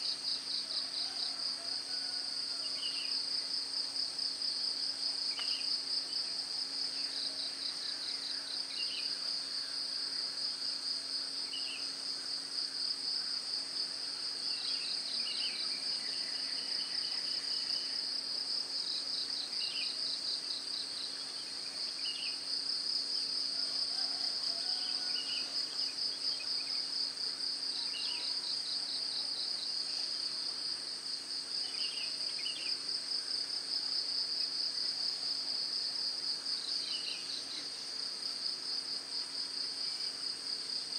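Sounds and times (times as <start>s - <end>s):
insect chirps: 0.0s - 40.9s
insect trill: 5.1s - 34.9s.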